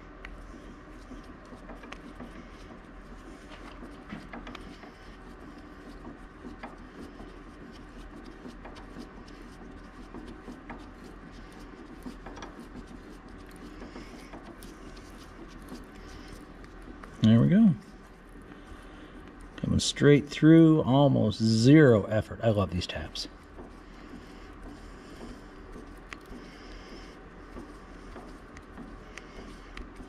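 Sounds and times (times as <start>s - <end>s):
steady low hum: 0.0s - 30.0s
tap clicking and rubbing: 23.6s - 26.5s.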